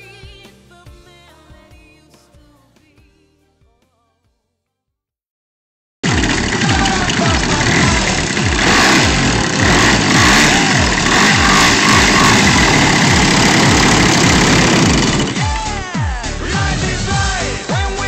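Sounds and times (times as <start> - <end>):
model plane engine running: 6.0 - 15.6.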